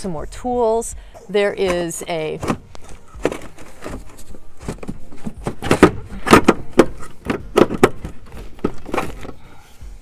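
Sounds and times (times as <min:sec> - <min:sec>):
gear rustling in plastic box: 0:02.7 - 0:09.4
sharp knocks and rattles: 0:03.2 - 0:09.3.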